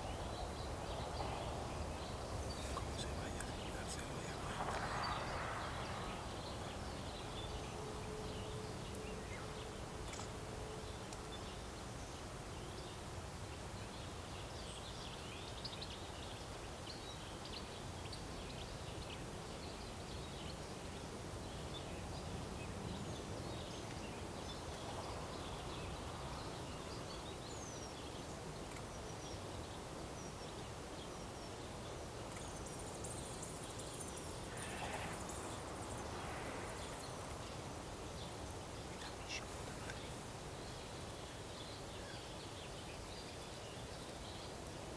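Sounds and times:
small birds chirping: 0.0 - 9.4, 13.8 - 44.9
high hiss: 32.8 - 40.6.

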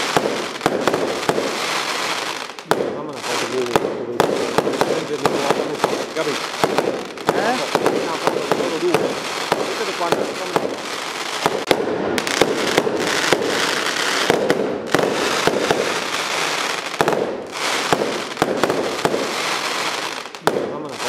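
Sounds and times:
firecrackers crackling: 0.0 - 21.0.

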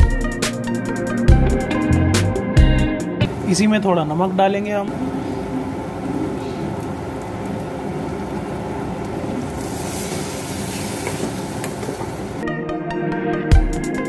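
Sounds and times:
water poured into hot pan: 9.1 - 12.4
food sizzling in a pan: 9.3 - 12.4.

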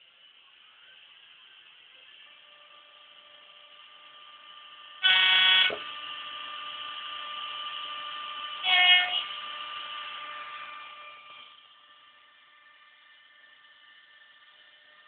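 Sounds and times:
electric running hum: 0.0 - 15.0
model locomotive horn: 5.0 - 5.8, 8.6 - 9.3.

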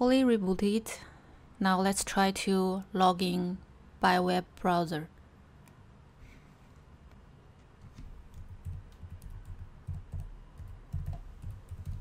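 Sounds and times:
computer keyboard typing: 7.8 - 12.0.

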